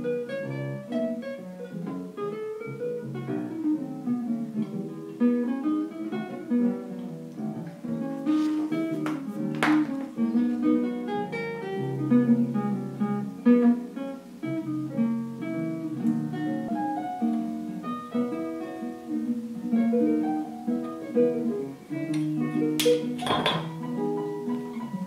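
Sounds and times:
acoustic guitar: 0.0 - 25.0
scratchy noise: 8.1 - 9.5.

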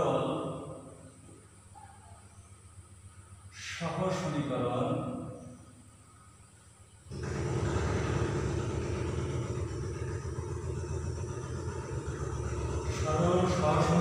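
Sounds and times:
steady low rumble: 7.1 - 14.0.

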